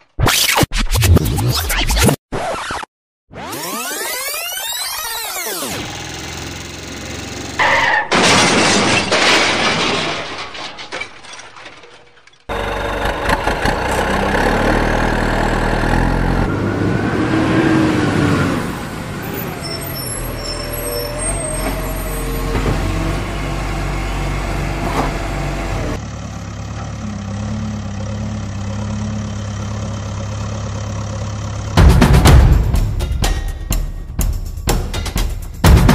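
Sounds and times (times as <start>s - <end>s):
heavy truck engine running: 5.7s - 7.6s, 12.5s - 32.8s.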